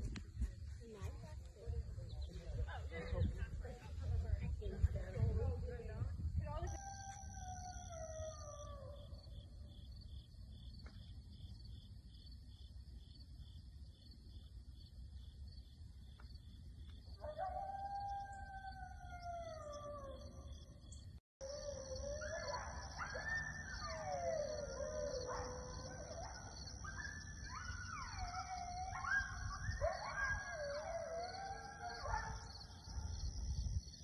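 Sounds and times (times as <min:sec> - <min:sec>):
coyotes howling and yipping: 0:06.5 - 0:09.9, 0:17.1 - 0:34.0.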